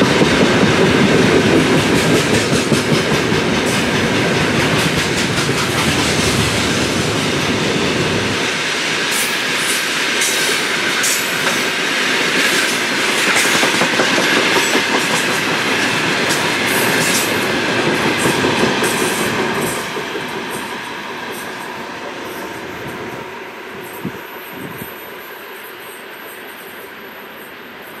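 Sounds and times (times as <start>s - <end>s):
train wheels clacking over rail joints: 0.0s - 8.4s, 9.1s - 21.8s.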